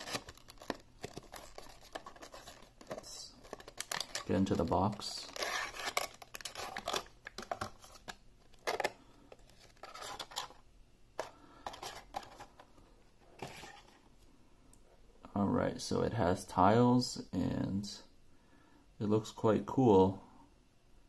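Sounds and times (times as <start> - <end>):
cardboard box opened: 0.0 - 10.6
plastic wrapper crinkling: 0.0 - 10.6.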